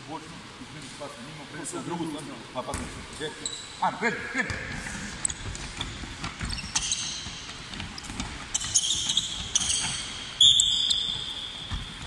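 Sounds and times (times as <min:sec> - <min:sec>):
shoes squeaking on hardwood court: 0:02.7 - 0:03.8, 0:04.5 - 0:12.0
handballs bouncing: 0:04.5 - 0:12.0.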